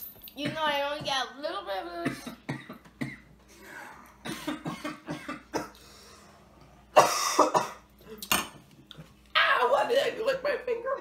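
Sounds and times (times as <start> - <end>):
boy coughing: 2.0 - 5.8, 6.9 - 7.9.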